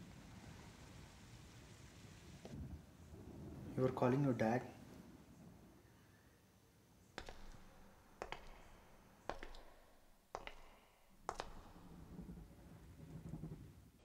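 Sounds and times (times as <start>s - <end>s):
sharp clicks with echo: 7.2s - 12.3s.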